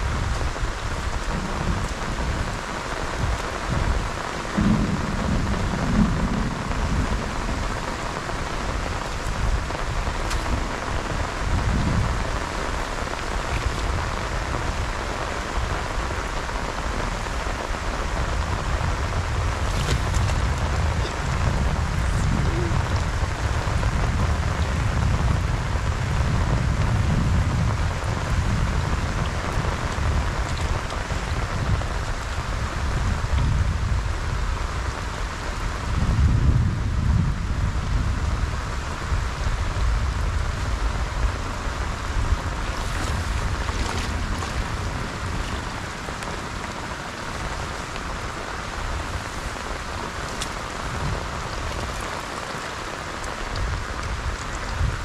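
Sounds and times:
low rumble: 0:00.0 - 0:34.4, 0:36.0 - 0:52.3
rain falling on grass and water: 0:00.0 - 0:55.0.

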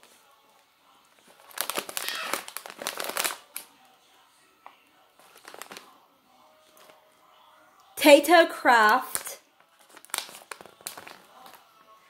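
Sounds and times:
plastic crisp bag crinkling: 0:01.3 - 0:03.7, 0:05.2 - 0:06.0, 0:08.8 - 0:11.7.

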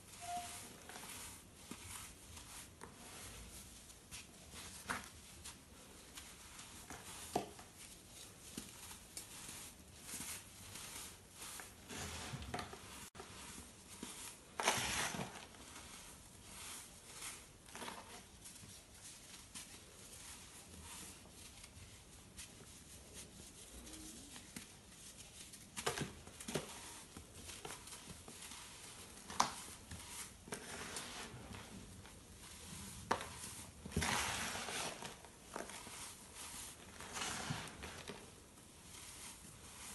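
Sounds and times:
powder sifting through fingers: 0:00.0 - 0:39.9
hands crushing baking soda: 0:24.4 - 0:39.9.

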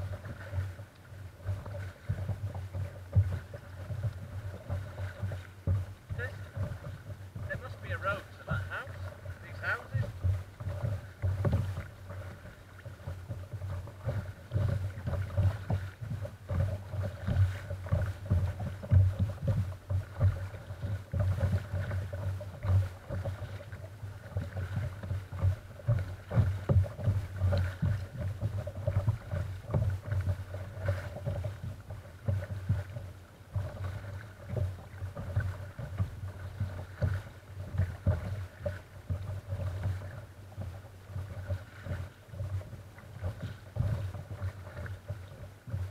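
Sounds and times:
waves lapping against kayak hull: 0:00.0 - 0:45.9.

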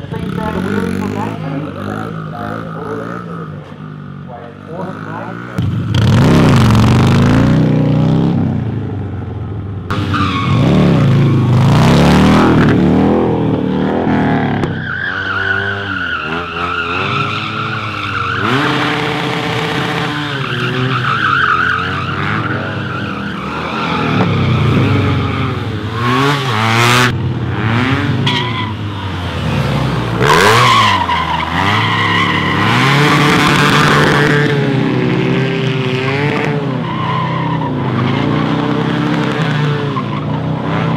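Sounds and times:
motorcycle engine revving: 0:00.0 - 0:40.9
tyre squeal: 0:14.6 - 0:25.6, 0:28.2 - 0:29.2.

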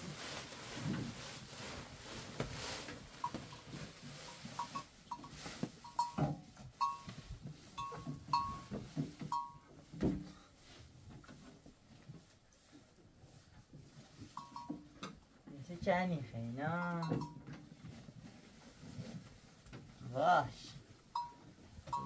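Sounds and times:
feed pouring from a sack: 0:00.0 - 0:06.0
sack rustling: 0:00.0 - 0:06.2
animals jostling and eating: 0:00.0 - 0:22.0.

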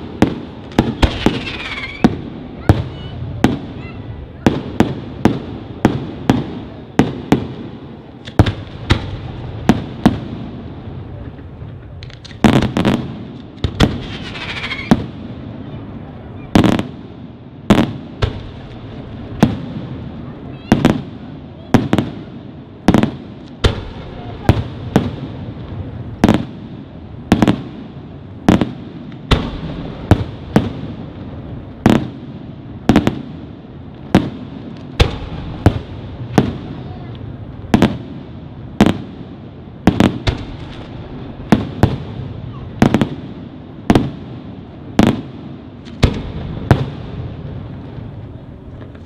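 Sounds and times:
firework shells bursting: 0:39.9 - 0:42.0.

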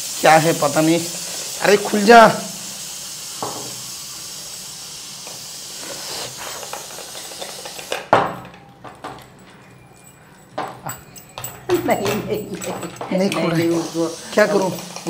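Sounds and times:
steam hissing from pressure cooker: 0:00.0 - 0:08.3, 0:12.9 - 0:15.0.

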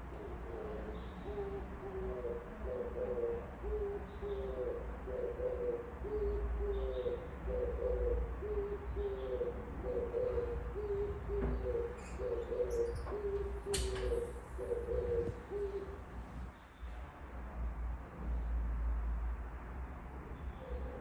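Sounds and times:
dove cooing: 0:00.0 - 0:16.1.

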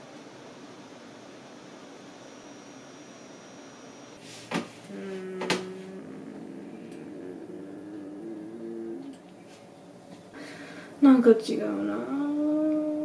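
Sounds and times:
person humming low notes: 0:04.9 - 0:09.3.

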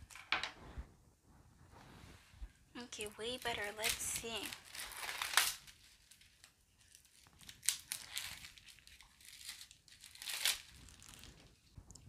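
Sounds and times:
plastic wrap tearing and crinkling: 0:03.3 - 0:12.0.

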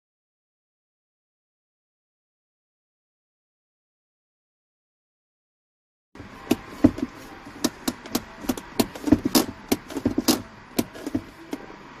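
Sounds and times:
handbrake ratchet clicking: 0:06.4 - 0:11.6.

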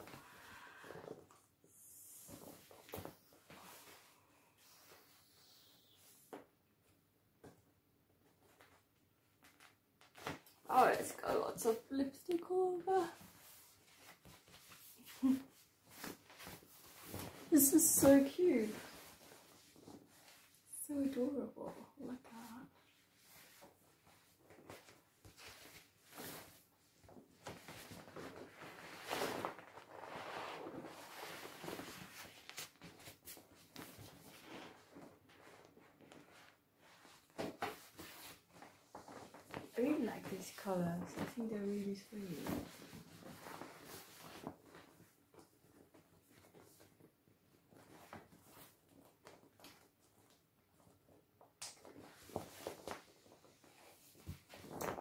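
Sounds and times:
rubbing on inflated vinyl: 0:22.2 - 0:47.1
vinyl crinkling: 0:22.8 - 0:55.0.

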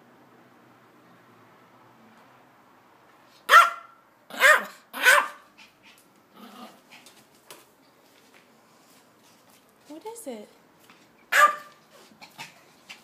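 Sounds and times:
small dog barking: 0:03.5 - 0:05.5, 0:11.3 - 0:11.8.

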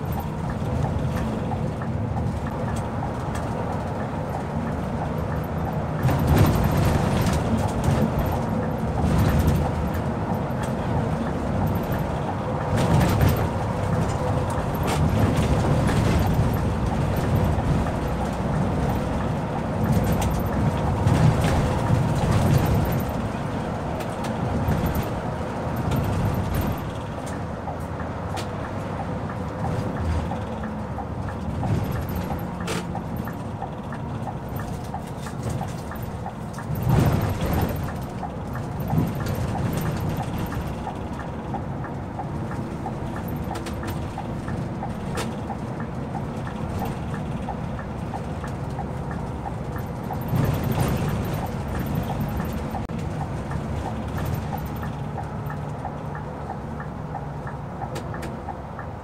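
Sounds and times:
coach engine and tyre noise: 0:00.0 - 0:59.0
light regular ticking: 0:25.8 - 0:59.0.

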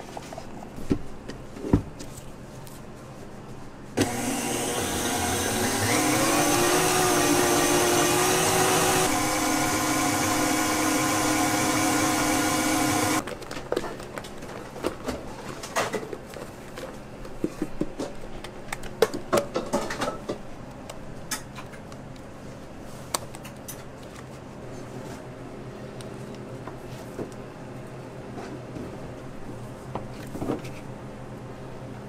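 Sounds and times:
stand mixer whirring: 0:04.0 - 0:13.2.

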